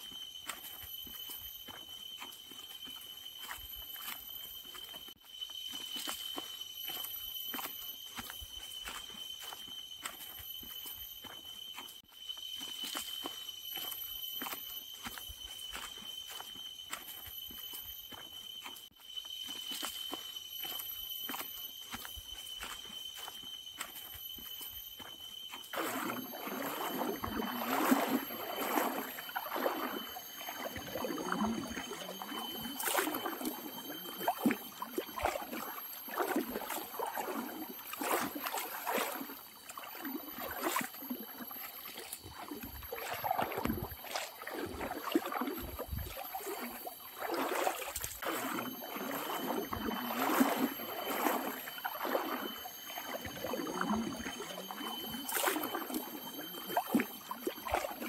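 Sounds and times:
feet splashing through river: 0.0 - 58.0
running water: 25.6 - 58.0.

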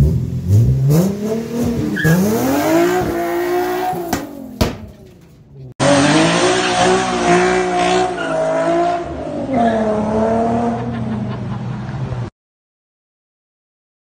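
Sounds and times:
car engine revving: 0.0 - 11.9
tires squealing: 0.9 - 11.4.

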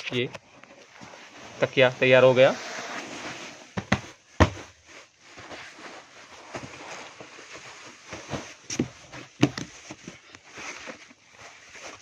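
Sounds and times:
rustling: 0.5 - 12.0
dull thumps of foam blocks: 3.8 - 4.8, 8.1 - 10.2.

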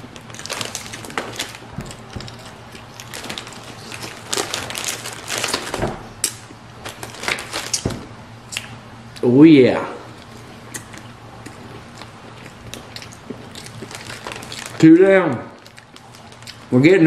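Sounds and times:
plastic wrap crinkling: 0.0 - 8.1, 11.6 - 14.9, 15.5 - 16.8.

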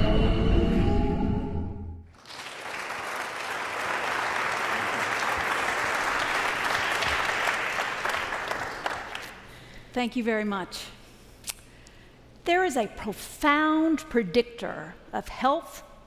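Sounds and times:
audience applauding: 2.1 - 9.5.

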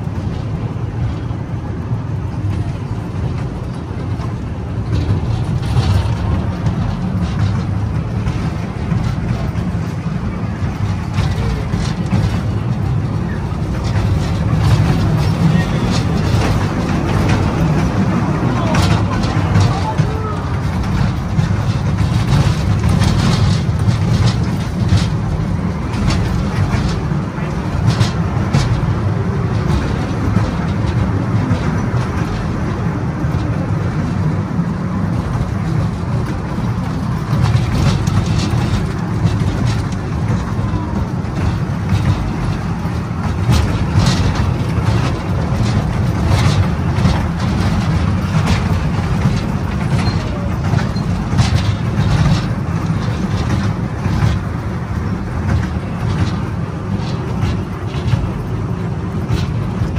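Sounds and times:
kiddie train rumbling on track: 0.0 - 59.9
train cars rattling and clicking: 0.0 - 59.9.

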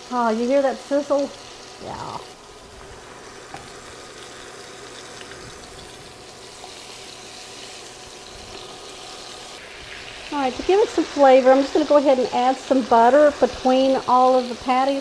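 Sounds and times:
patties sizzling in oil: 0.0 - 15.0.

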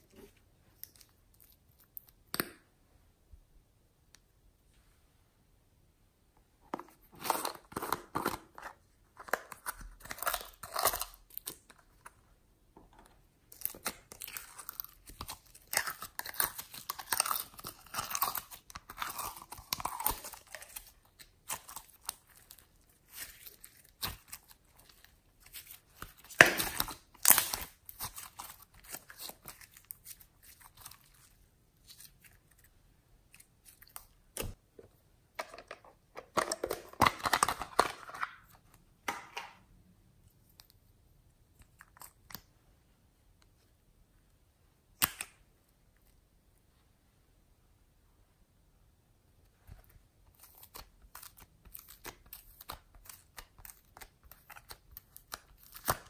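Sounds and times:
slime squishing: 13.5 - 34.6.

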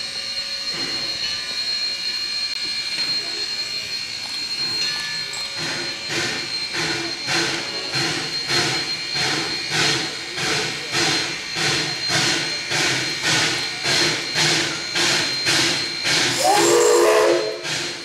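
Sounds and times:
steam locomotive chuffing: 0.0 - 18.0
steady hiss of steam: 4.6 - 18.0.

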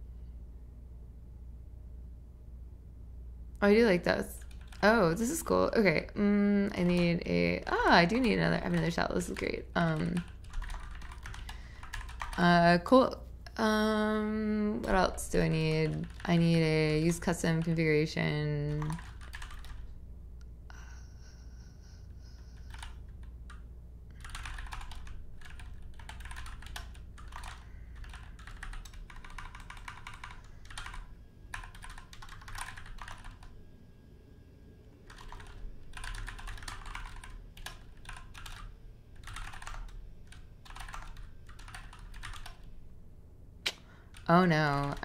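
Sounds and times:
typing on computer keyboard: 4.4 - 5.5, 6.8 - 12.4, 15.4 - 17.8, 18.7 - 19.9, 22.5 - 23.6, 24.2 - 33.5, 35.1 - 42.7.

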